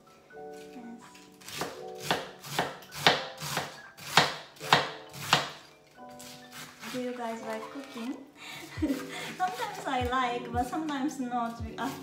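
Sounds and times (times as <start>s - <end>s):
kitchen knife chopping cabbage: 0.5s - 5.6s, 6.2s - 7.1s.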